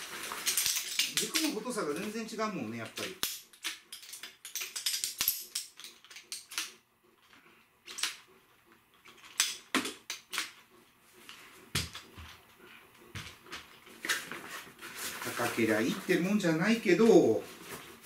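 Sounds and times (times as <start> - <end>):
tent poles clicking together: 0.3 - 2.1.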